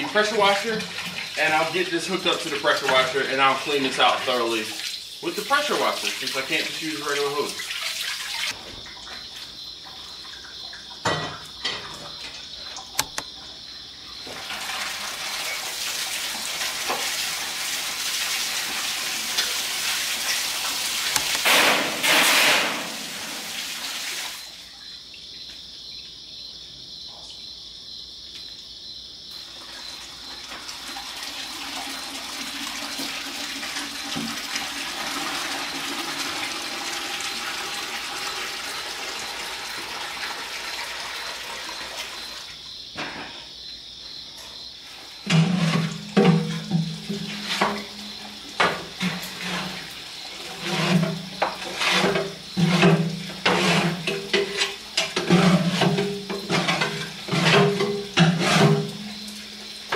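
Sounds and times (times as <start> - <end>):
hose water spraying into metal chamber: 0.0 - 8.6, 14.3 - 24.5, 45.2 - 59.9.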